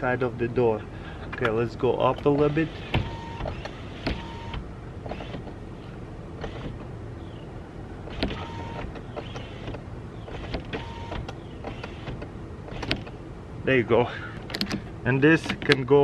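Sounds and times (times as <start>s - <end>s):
power window motor humming: 2.2s - 5.6s, 6.4s - 7.0s, 8.0s - 13.2s.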